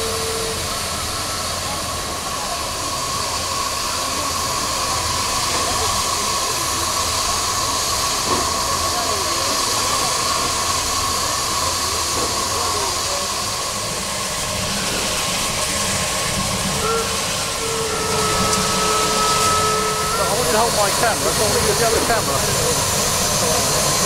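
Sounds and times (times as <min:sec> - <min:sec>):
steam hissing from locomotive: 0:00.0 - 0:24.0.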